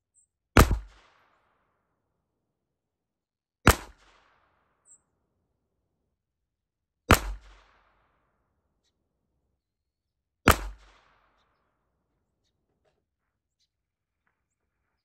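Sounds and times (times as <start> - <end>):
pistol shots with echo: 0.6 - 1.6, 3.7 - 4.6, 7.1 - 8.3, 10.5 - 11.4.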